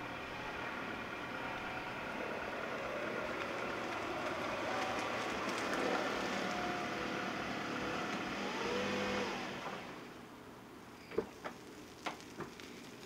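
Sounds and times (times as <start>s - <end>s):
car engine running: 0.0s - 10.0s.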